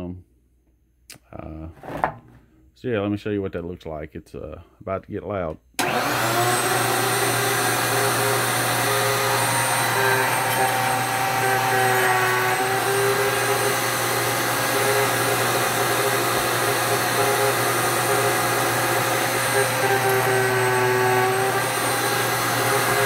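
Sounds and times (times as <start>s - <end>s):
router bit cutting wood: 5.8s - 23.0s
router motor running with whine: 5.8s - 23.0s.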